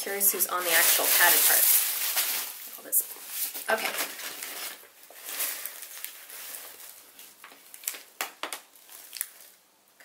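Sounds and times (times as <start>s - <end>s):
packing paper crinkling: 0.4s - 9.6s
fabric bag rustling: 0.5s - 8.0s.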